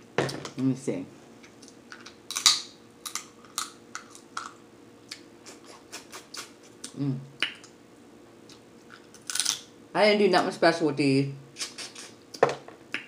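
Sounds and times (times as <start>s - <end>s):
crab shells cracking and snapping: 1.6s - 5.2s, 8.9s - 9.7s.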